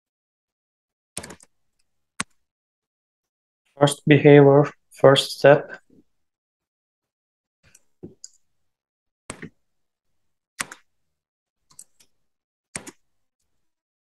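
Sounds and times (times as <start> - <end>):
computer keyboard typing: 1.2 - 1.6, 10.6 - 10.9, 11.7 - 12.1, 12.8 - 13.0.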